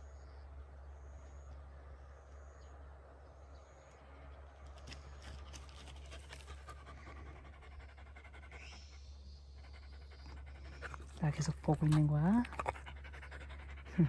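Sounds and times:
dog panting: 5.8 - 14.0.

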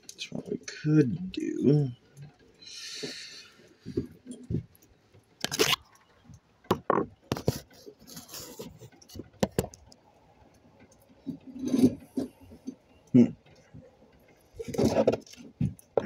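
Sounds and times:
tools knocking and scraping: 6.7 - 9.8, 11.3 - 12.8, 14.6 - 16.0.

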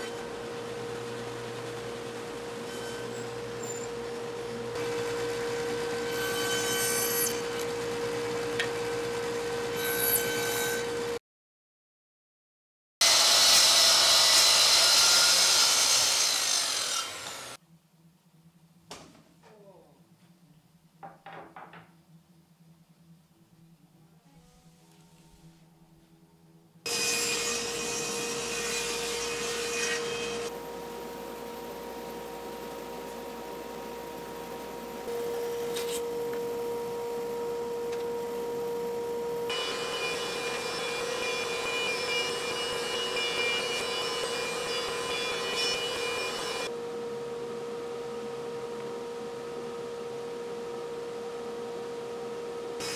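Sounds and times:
bandsaw humming: 0.0 - 11.2, 13.0 - 17.6, 26.9 - 46.8
thickness planer whining: 0.0 - 11.2, 13.0 - 17.6, 26.9 - 52.9
track saw cutting wood: 0.0 - 11.2, 13.0 - 17.6, 26.9 - 32.2, 39.5 - 46.7.

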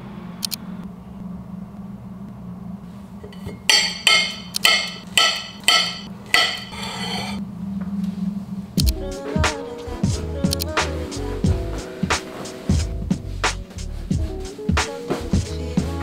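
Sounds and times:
sharp ringing knocks: 3.3 - 7.4.

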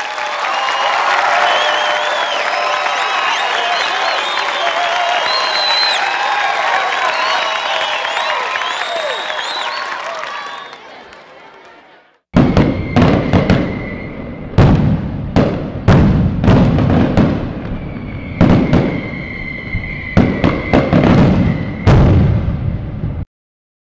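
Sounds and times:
high whistle: 0.3 - 10.9, 12.4 - 14.6, 17.4 - 22.0
firework bangs with crackle: 12.4 - 23.1.

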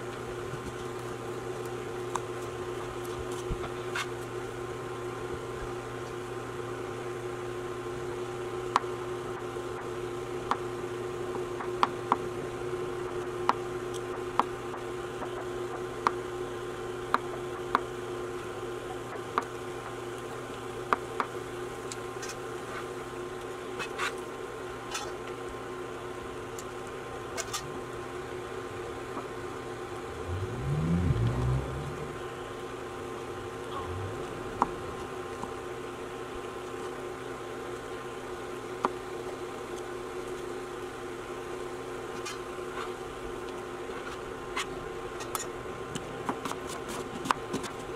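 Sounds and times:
induction cooktop hum: 0.0 - 47.9
short low rumble: 30.0 - 35.8.

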